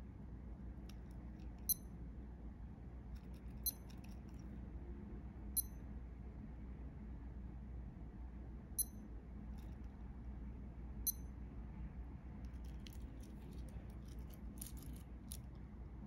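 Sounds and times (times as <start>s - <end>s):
watch clicking and rustling: 3.2s - 4.5s, 12.5s - 15.6s
digital watch beeping: 3.6s - 3.9s, 5.6s - 5.8s, 8.8s - 9.0s, 11.1s - 11.3s.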